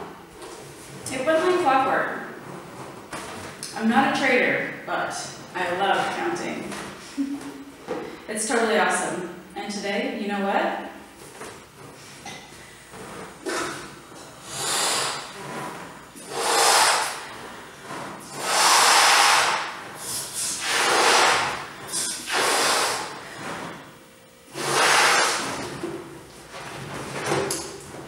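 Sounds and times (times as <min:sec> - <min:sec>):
breaths blown into balloon: 0:13.4 - 0:23.8, 0:24.5 - 0:25.8.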